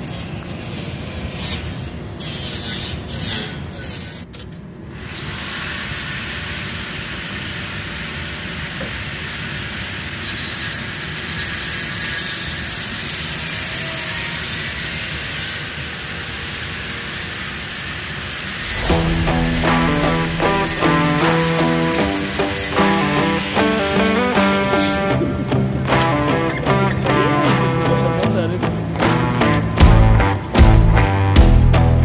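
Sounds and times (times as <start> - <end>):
welding arc hissing: 4.9 - 29.6.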